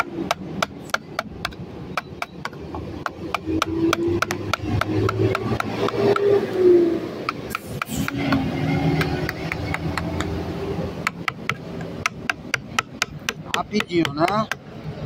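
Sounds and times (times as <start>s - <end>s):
chisel knocking into wood: 0.3s - 6.2s, 11.0s - 14.7s.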